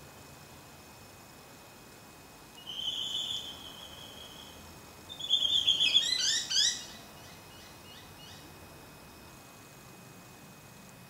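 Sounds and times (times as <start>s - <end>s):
bird whistling call: 2.6s - 7.0s.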